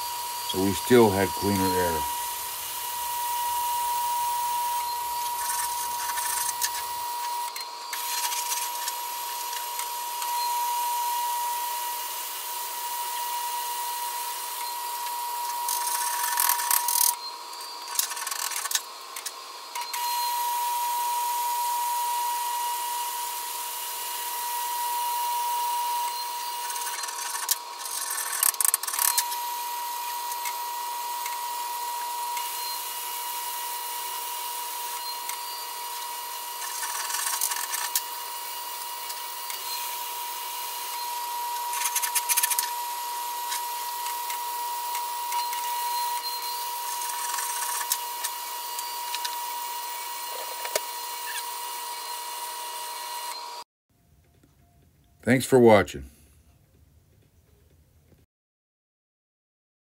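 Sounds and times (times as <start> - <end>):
welding arc crackling: 0.0 - 7.3, 32.0 - 51.4
steady whine: 0.0 - 11.4.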